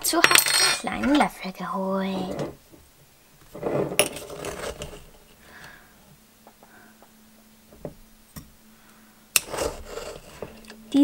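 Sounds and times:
spoon scraping powder: 0:03.6 - 0:05.2, 0:09.4 - 0:10.8.

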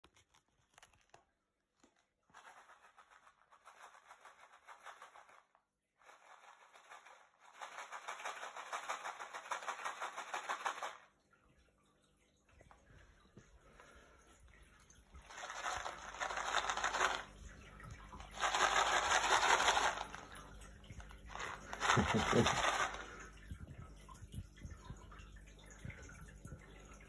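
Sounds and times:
pellets rattling in plastic bag: 0:02.3 - 0:11.0, 0:15.2 - 0:17.4, 0:18.2 - 0:20.5, 0:21.2 - 0:23.2.

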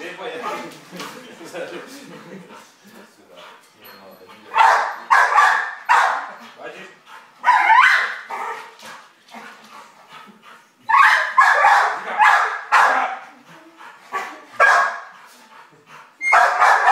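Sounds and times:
dog barking: 0:04.5 - 0:06.3, 0:07.4 - 0:08.7, 0:10.9 - 0:13.2, 0:14.1 - 0:15.1, 0:16.2 - 0:16.9.

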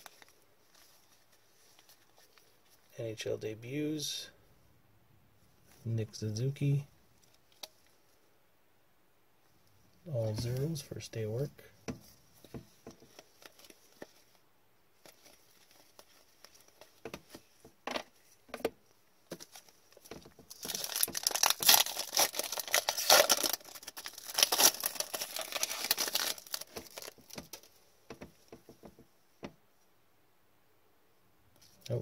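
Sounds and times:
wrapper tearing and crinkling: 0:19.3 - 0:27.7
cards clicking and rustling: 0:19.3 - 0:28.3.

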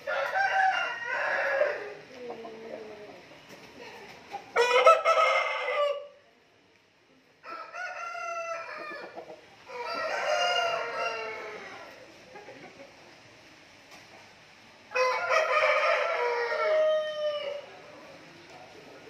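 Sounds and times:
roosters crowing: 0:00.0 - 0:03.3, 0:04.5 - 0:06.2, 0:07.4 - 0:12.1, 0:14.9 - 0:17.8.

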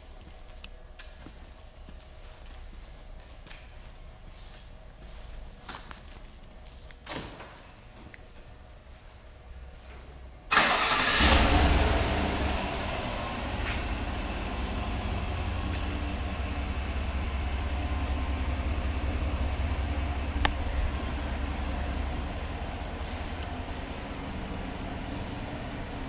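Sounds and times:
truck engine starting and idling: 0:10.5 - 0:26.0.

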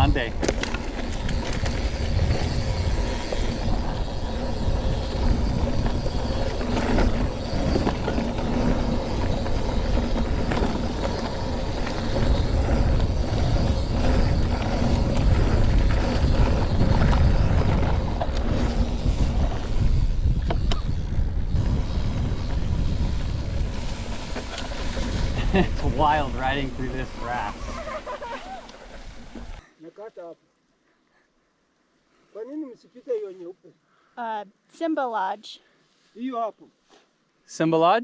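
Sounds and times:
bike tyres over dirt: 0:00.0 - 0:29.6
wind on microphone: 0:00.0 - 0:29.6.

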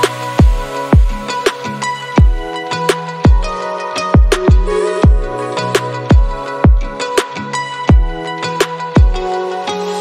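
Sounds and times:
deep kick drums: 0:00.4 - 0:01.2, 0:02.2 - 0:02.5, 0:03.2 - 0:03.6, 0:04.2 - 0:05.4, 0:06.1 - 0:07.0, 0:07.9 - 0:08.2, 0:09.0 - 0:09.2.

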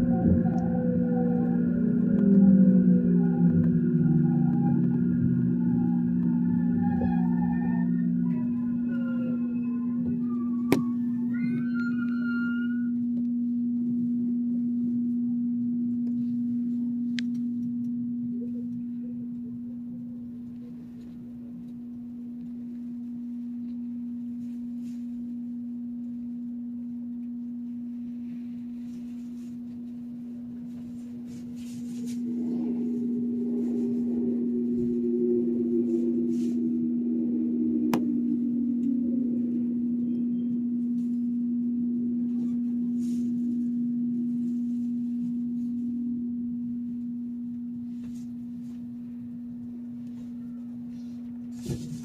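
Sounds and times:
higher tone gliding down: 0:00.0 - 0:13.0, 0:31.9 - 0:43.0
steady tone: 0:00.0 - 0:18.6, 0:30.7 - 0:48.6
faint noise: 0:28.0 - 0:46.2.

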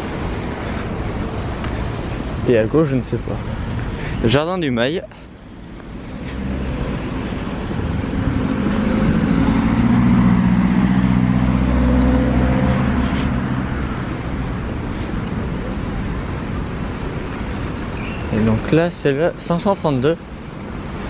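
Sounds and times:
road traffic: 0:00.0 - 0:21.0
vehicle engine hum passing: 0:05.3 - 0:18.6.

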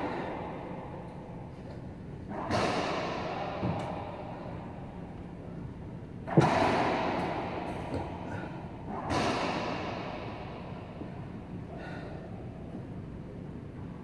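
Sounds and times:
racquet striking ball: 0:02.3 - 0:04.9, 0:06.2 - 0:11.0
dull thud with echo: 0:06.2 - 0:11.4.

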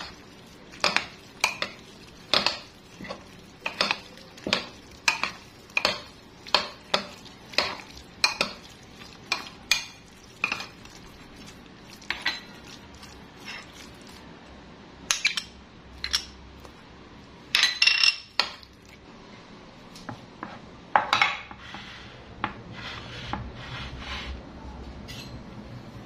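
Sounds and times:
cutlery clinking on ceramic bowls: 0:00.0 - 0:10.8, 0:12.0 - 0:12.8, 0:17.6 - 0:18.7, 0:25.0 - 0:25.4.

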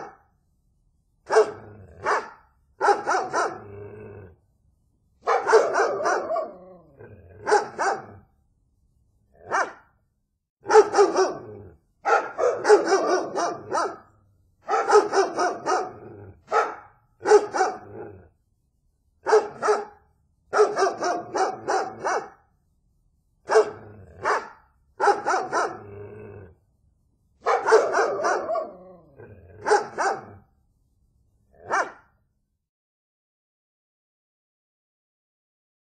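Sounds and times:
dog barking: 0:00.0 - 0:00.2, 0:01.3 - 0:03.7, 0:05.2 - 0:06.8, 0:07.4 - 0:08.3, 0:09.4 - 0:09.9, 0:10.6 - 0:18.1, 0:19.2 - 0:22.4, 0:23.5 - 0:25.9, 0:27.4 - 0:30.5, 0:31.6 - 0:32.2.

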